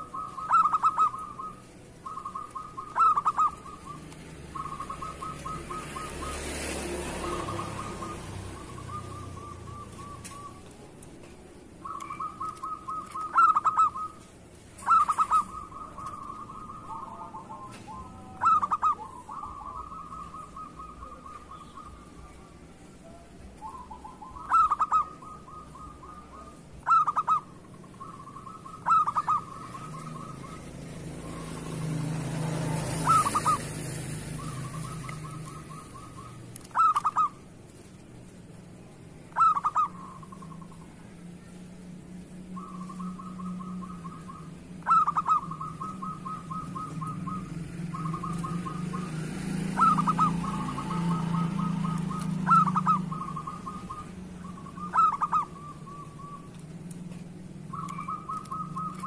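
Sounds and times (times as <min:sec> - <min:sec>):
dove cooing notes: 0:00.0 - 0:59.0
dove purring trills: 0:00.0 - 0:59.0.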